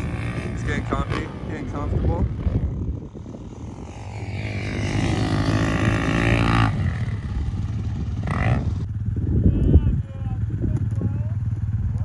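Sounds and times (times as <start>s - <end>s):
dirt bike engine revving: 0.0s - 9.4s.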